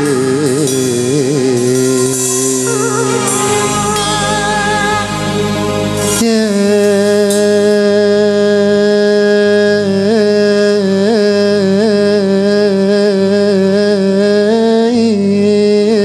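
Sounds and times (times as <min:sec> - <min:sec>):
live band accompaniment: 0:00.0 - 0:08.4
man singing a long note: 0:00.0 - 0:16.0.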